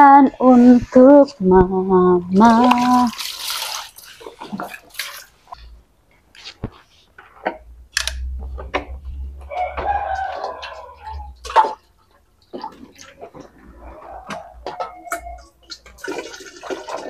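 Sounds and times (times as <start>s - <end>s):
washing at a sink: 0.0s - 7.6s, 8.7s - 17.0s
rooster crowing: 9.4s - 11.4s, 13.8s - 15.5s.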